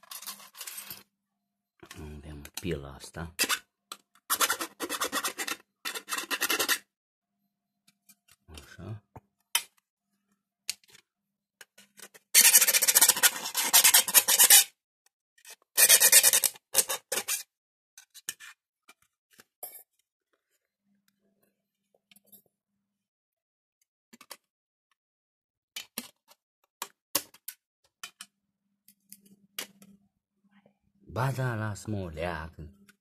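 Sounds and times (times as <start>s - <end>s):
small scrapes and clicks: 0.0s - 1.1s, 15.4s - 20.7s
hand file rasping: 12.4s - 14.7s.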